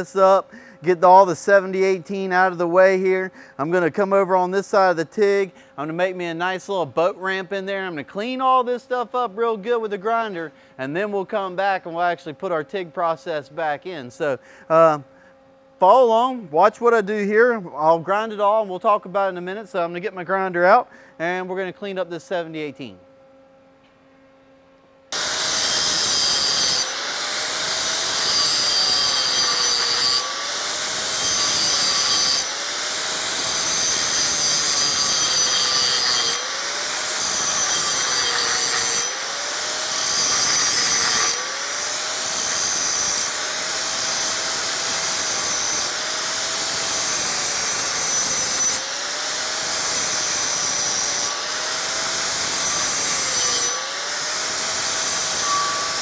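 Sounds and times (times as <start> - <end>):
angle grinder grinding steel: 25.1 - 56.0.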